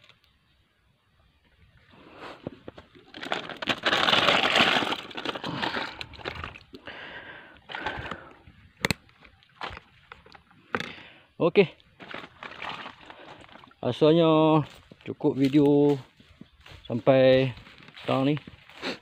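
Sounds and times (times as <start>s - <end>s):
leaves rustling and crackling: 1.4s - 7.0s, 11.8s - 19.0s.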